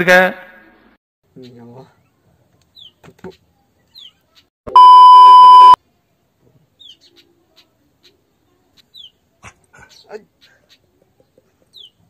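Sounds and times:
high-pitched electronic bleep: 4.7s - 5.8s.

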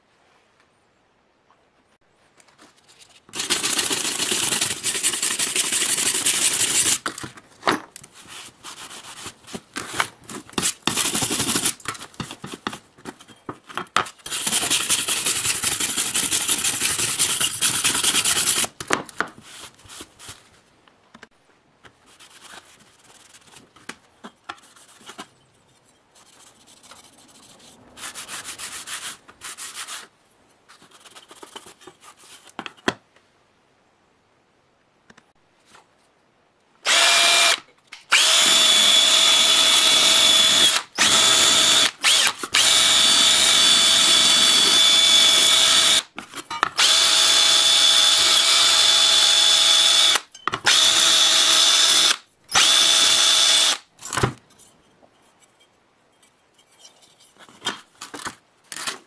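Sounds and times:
sanding a cleaver: 3.4s - 7.0s, 14.3s - 18.7s.

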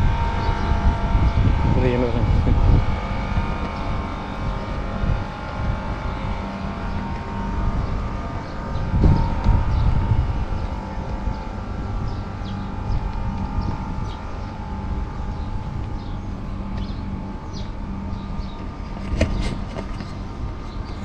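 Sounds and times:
low rumble: 0.0s - 21.0s
motor humming: 0.0s - 21.0s.

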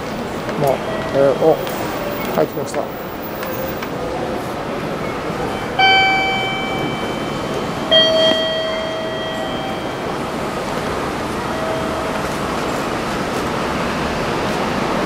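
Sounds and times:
station noise: 0.0s - 15.0s
two-note electronic chime: 5.4s - 13.1s.

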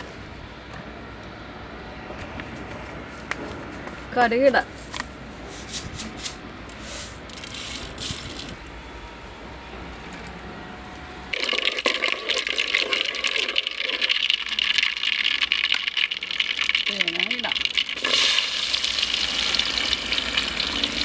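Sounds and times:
seeds popping in hot oil: 11.3s - 21.0s.

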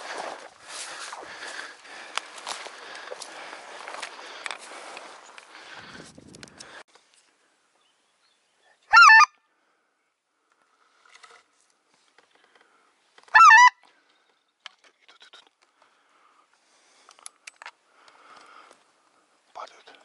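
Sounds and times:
goose call honks: 8.9s - 9.4s, 13.3s - 13.8s.

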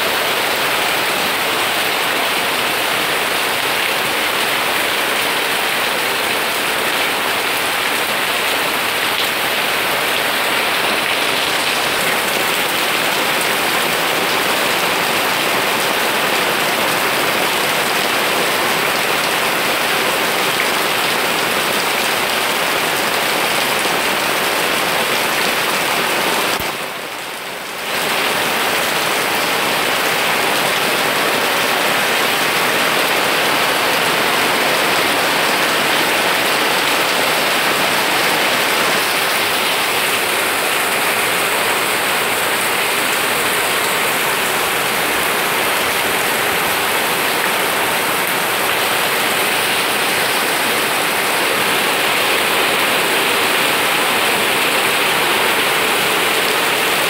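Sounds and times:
steady rain on plants: 0.0s - 57.0s.

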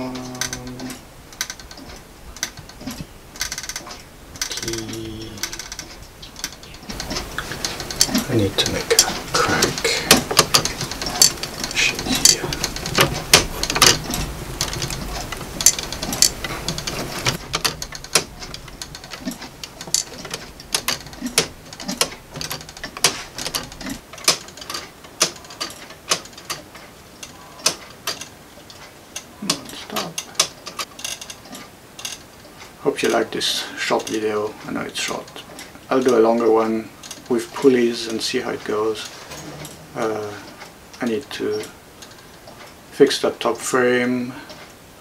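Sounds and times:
ratchet clicks: 0.0s - 32.3s
clock ticking: 0.0s - 44.8s.

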